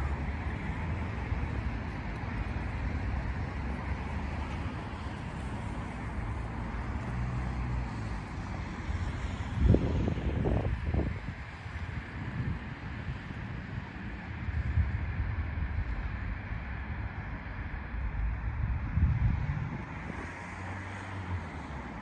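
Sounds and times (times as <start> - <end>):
wind buffeting microphone: 7.8 - 20.8.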